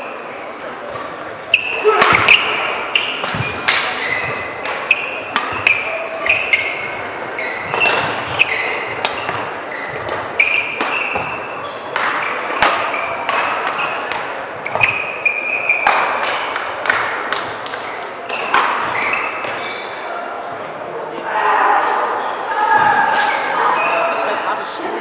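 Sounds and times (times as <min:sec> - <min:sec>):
shoes squeaking on court floor: 0:00.0 - 0:16.9, 0:17.8 - 0:20.2
racket hitting shuttlecock: 0:00.9 - 0:19.6.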